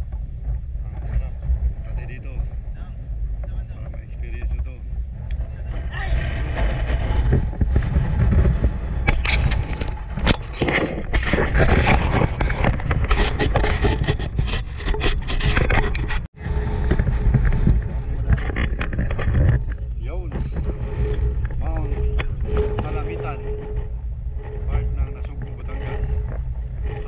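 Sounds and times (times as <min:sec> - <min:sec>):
scraping and knocking on rocky track: 0:05.4 - 0:27.0.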